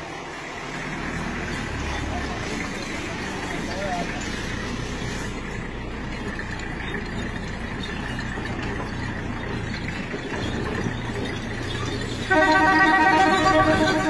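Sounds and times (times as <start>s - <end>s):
vehicle engine humming: 0.0s - 14.0s.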